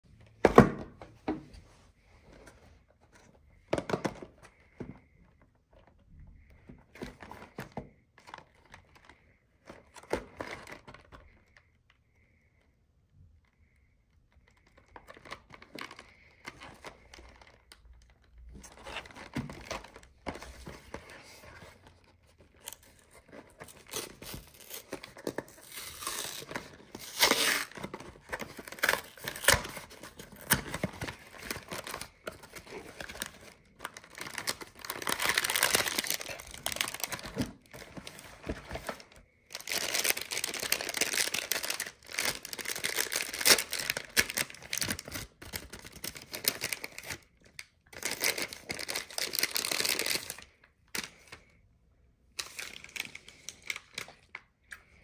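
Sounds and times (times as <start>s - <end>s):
wrapper tearing and crinkling: 23.6s - 47.2s, 48.0s - 50.4s.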